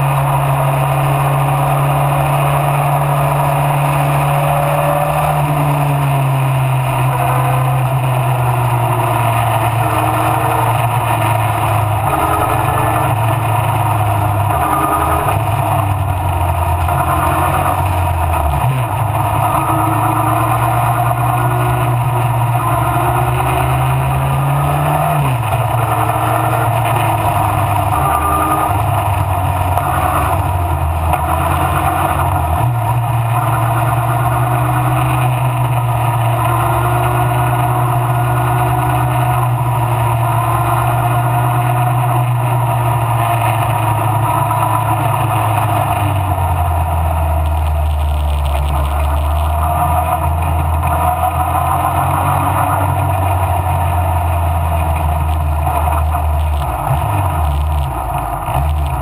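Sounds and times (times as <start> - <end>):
race car engine running hard: 0.0 - 59.0.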